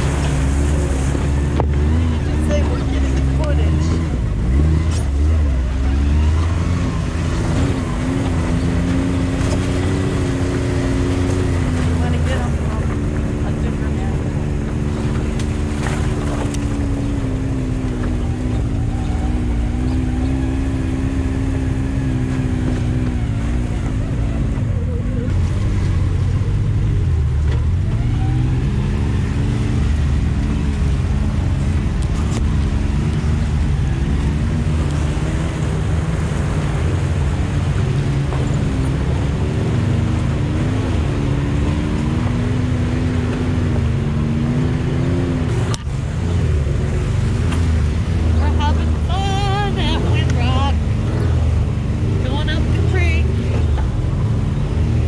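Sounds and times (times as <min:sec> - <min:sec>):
utility vehicle engine under load: 0:00.0 - 0:55.0.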